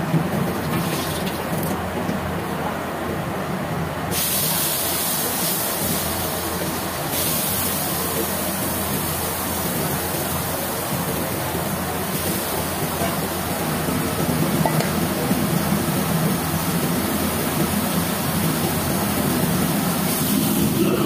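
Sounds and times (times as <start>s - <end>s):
tap running into a pot: 14.6s - 15.0s.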